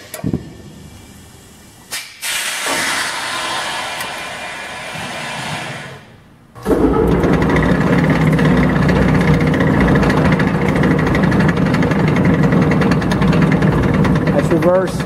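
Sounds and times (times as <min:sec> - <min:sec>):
machine hum with fast rattle: 0:06.5 - 0:15.0.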